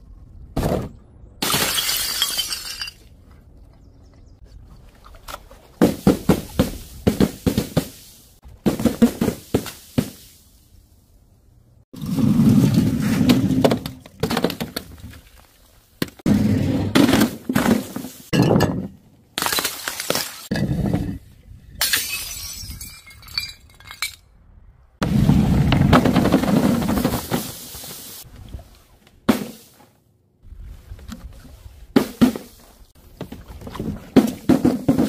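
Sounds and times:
bottles smashing on pavement: 0:01.4 - 0:03.1, 0:16.9 - 0:20.8, 0:21.8 - 0:24.2
glass-like clinking: 0:21.8 - 0:24.2.

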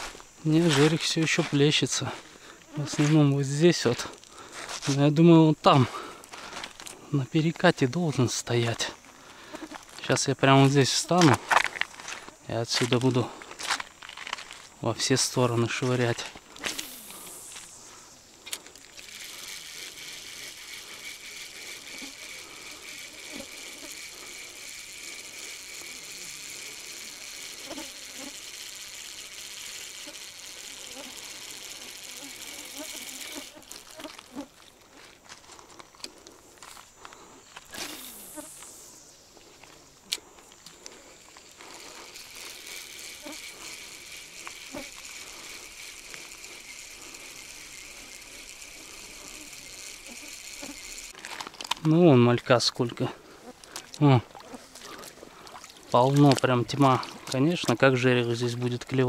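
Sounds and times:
high-pitched insect chirring: 0:00.0 - 0:59.0
faint ticks: 0:05.9 - 0:38.8, 0:39.4 - 0:52.5
fishing reel gears whirring: 0:10.6 - 0:35.1, 0:35.8 - 0:59.0.

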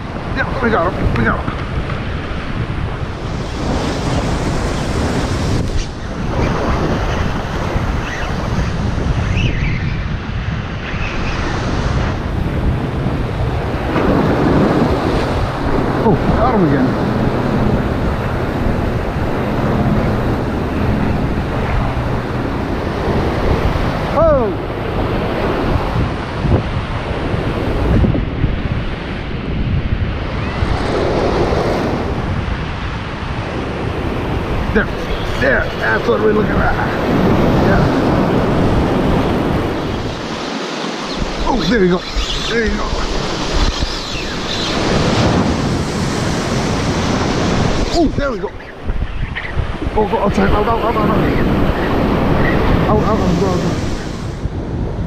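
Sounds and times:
surf washing over rocks: 0:00.0 - 0:09.3, 0:10.0 - 0:55.0
wind buffeting microphone: 0:00.0 - 0:55.0
surf breaking over rocks: 0:11.3 - 0:28.8.

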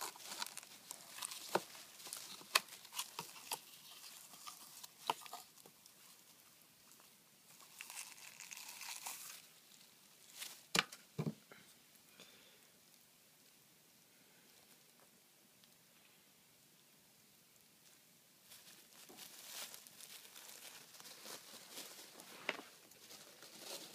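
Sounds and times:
bedding and cardboard rustling: 0:18.5 - 0:23.9.

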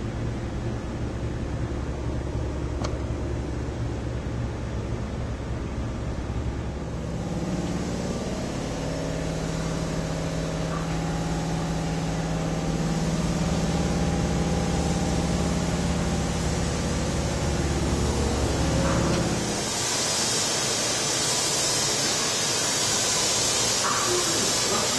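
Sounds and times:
train car hum and rumble: 0:00.0 - 0:24.9
low droning tone: 0:06.9 - 0:19.7.

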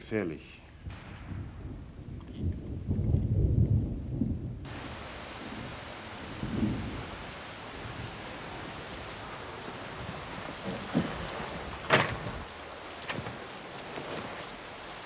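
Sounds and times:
muffled thunder rumbling: 0:00.7 - 0:15.0
heavy rain pouring: 0:01.3 - 0:15.0.

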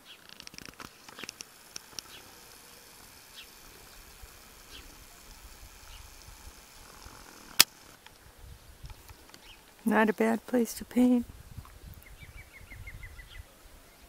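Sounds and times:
faint bird chirps: 0:12.0 - 0:14.0.

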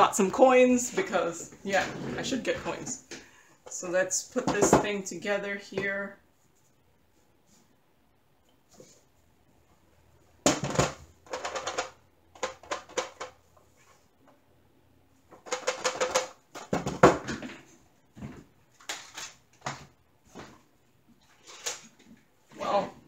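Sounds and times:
wooden frame clicking and rattling: 0:10.5 - 0:13.4, 0:15.4 - 0:17.6.

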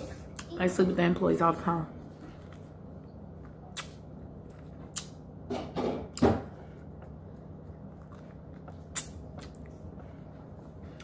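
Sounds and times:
chewing: 0:07.0 - 0:10.0.

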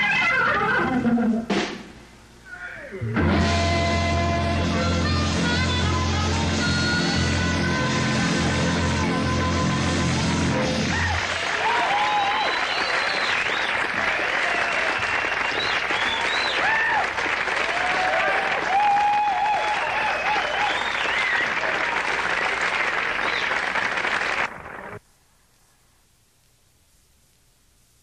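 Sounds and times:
audience cheering: 0:10.6 - 0:25.0
audience applauding: 0:10.8 - 0:25.0
audience whistling: 0:10.9 - 0:25.0.

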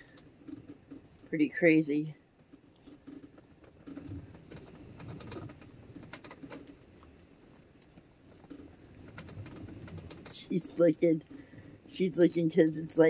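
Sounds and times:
soft clicks and rustles: 0:00.0 - 0:01.4, 0:02.2 - 0:13.0
wind gusts buffeting vehicle: 0:08.3 - 0:11.1.

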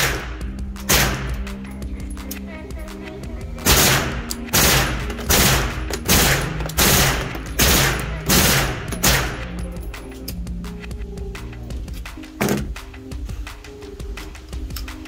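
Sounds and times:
suppressed gunshots: 0:00.0 - 0:01.4, 0:03.6 - 0:09.5.

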